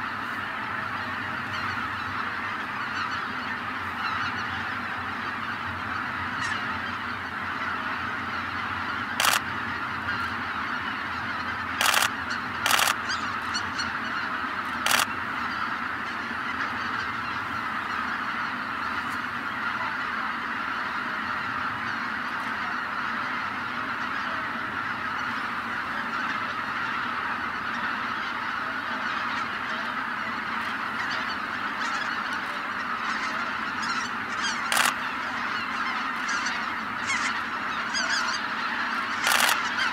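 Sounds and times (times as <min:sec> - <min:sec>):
geese honking: 0:00.0 - 0:39.9
sharp clicks: 0:09.2 - 0:09.4, 0:11.8 - 0:12.1, 0:12.7 - 0:13.0, 0:14.9 - 0:15.1, 0:34.7 - 0:35.0, 0:39.2 - 0:39.6.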